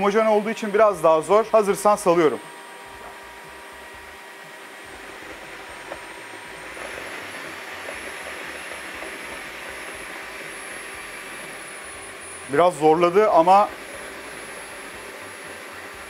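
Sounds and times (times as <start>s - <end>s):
floor vacuum high whine: 0.0s - 16.0s
roller head scrubbing: 5.0s - 11.8s.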